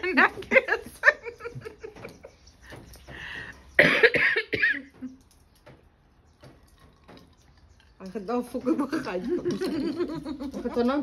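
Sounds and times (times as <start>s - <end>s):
person coughing: 3.8s - 4.9s.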